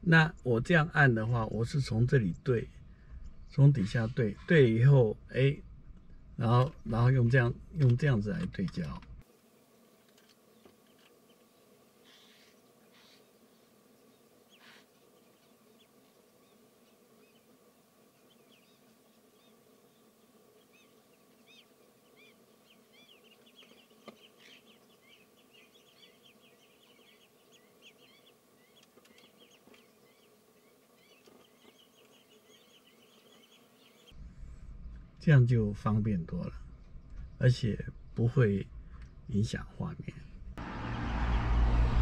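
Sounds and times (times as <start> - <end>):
faint steady hum: 0.0 - 39.5
birds chirping: 9.7 - 39.6.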